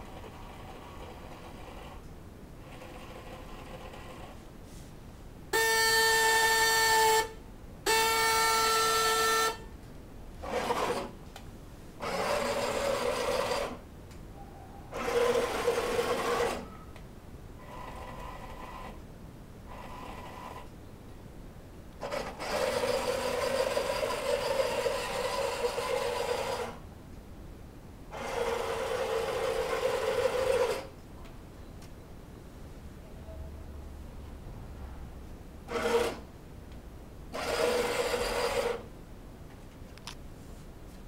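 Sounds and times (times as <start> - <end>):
toy truck horn buzzing: 5.5 - 9.7, 22.1 - 26.8, 28.2 - 30.9, 37.4 - 38.8
small electric motor whirring: 12.0 - 13.8, 15.0 - 16.7, 22.0 - 26.8, 35.7 - 36.2, 37.3 - 38.9.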